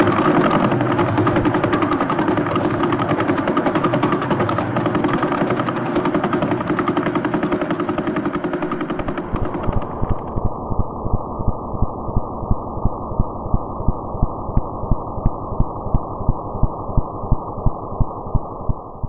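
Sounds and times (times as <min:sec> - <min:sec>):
fast pulsing intro music: 0:00.0 - 0:10.5.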